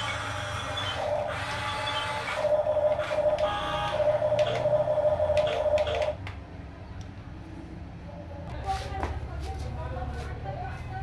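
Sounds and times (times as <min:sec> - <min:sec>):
electric motors whining: 0:00.0 - 0:06.2.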